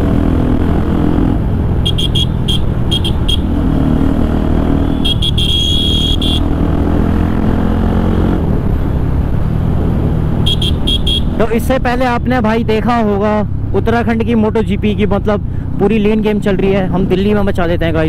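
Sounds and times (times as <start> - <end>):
motorcycle engine running: 4.8 - 8.2.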